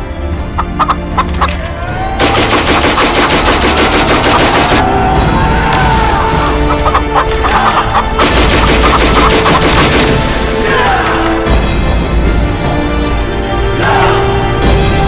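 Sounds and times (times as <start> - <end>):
music: 0.0 - 15.0
chicken clucking and squawking: 0.5 - 1.6, 6.3 - 9.8
rapid gunfire: 2.2 - 4.9, 8.0 - 10.4.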